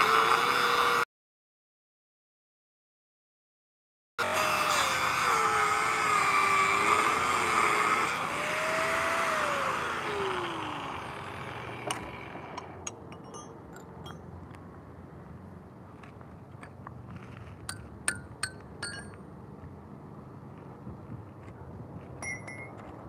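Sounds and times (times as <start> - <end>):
angle grinder cutting steel rod: 0.0 - 1.0, 4.2 - 13.5.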